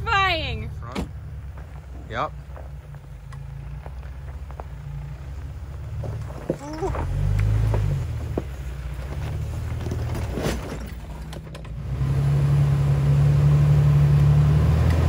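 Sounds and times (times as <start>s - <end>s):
engine running at low revs: 0.0s - 10.4s, 11.4s - 15.0s.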